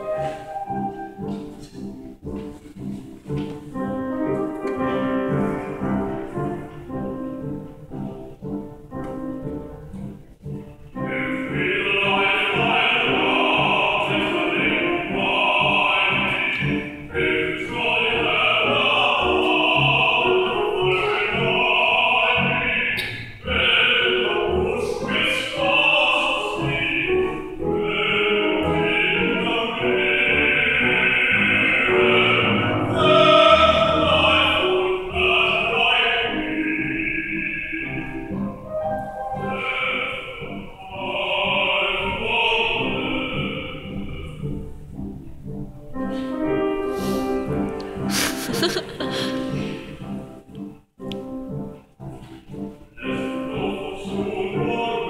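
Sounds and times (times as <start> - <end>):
man singing operatically: 11.0 - 44.7, 53.0 - 55.0.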